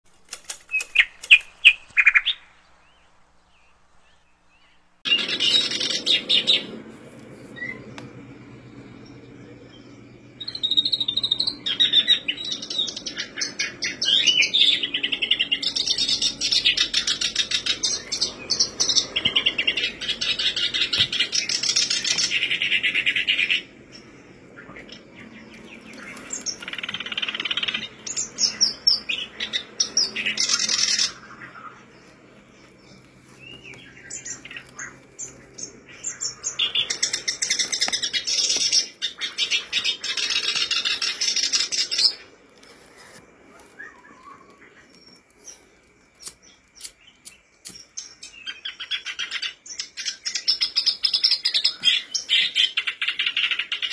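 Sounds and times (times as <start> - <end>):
bird singing chattering song: 0.4 - 42.4, 43.0 - 53.9.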